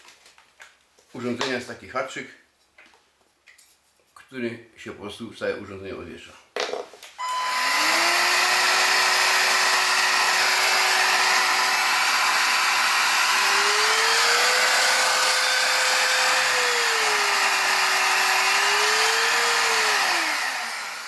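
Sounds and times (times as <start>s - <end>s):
vacuum motor whining: 7.2s - 21.0s.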